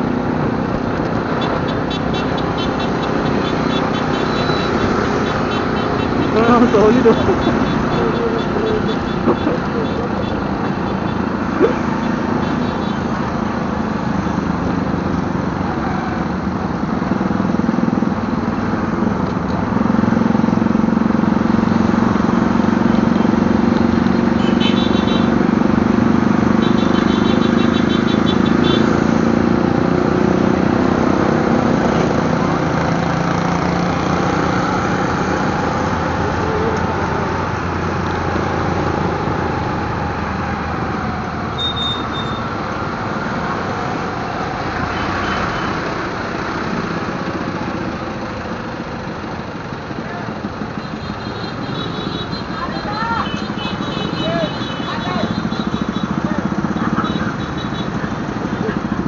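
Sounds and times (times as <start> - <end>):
motorcycle engine running: 48.8 - 59.0.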